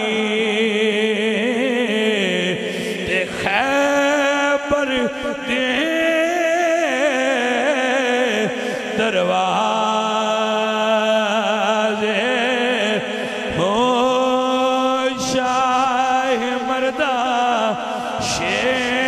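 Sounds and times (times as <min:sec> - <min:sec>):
man chanting into microphone: 0:00.0 - 0:19.0.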